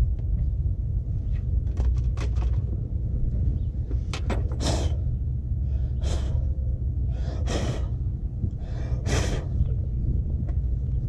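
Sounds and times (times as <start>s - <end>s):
low steady rumble: 0.0s - 11.0s
man breathing heavily: 4.4s - 10.0s.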